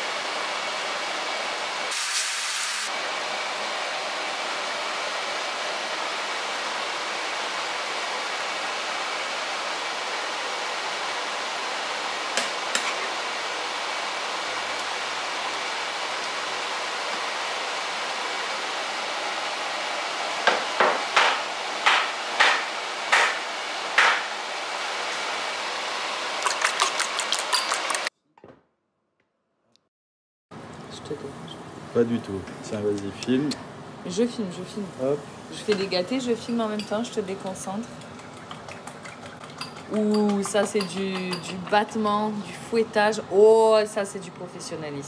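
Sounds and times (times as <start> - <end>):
pot boiling hiss: 0.0 - 20.1, 24.8 - 28.1, 31.1 - 42.4.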